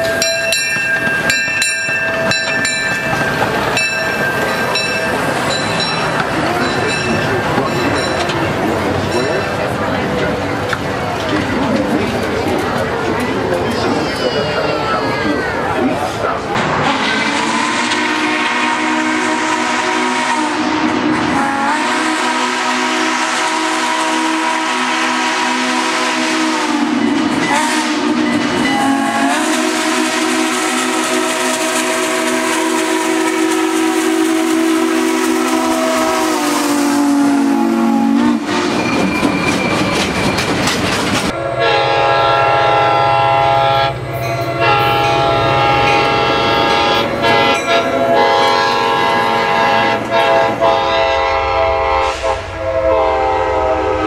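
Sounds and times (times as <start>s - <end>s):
train rumble and wheel clatter: 0.0s - 54.0s
train horn: 16.7s - 39.0s, 41.3s - 54.0s
steam locomotive whistle blasts: 16.8s - 39.5s, 41.3s - 54.0s.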